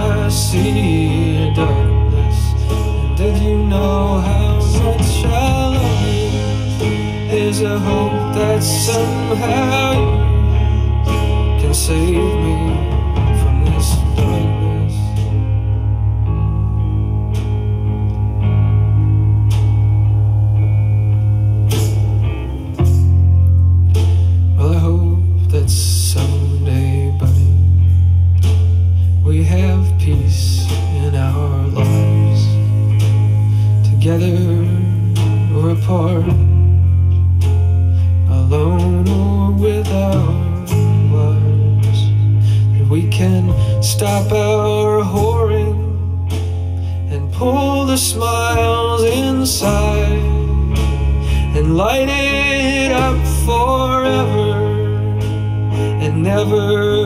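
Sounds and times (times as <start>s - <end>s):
person singing: 0.0s - 15.6s, 24.5s - 27.7s, 29.2s - 33.1s, 37.9s - 57.0s
guitar: 0.0s - 57.0s
heavy sustained bass line: 0.0s - 57.0s
rock blues song through speaker: 0.0s - 57.0s.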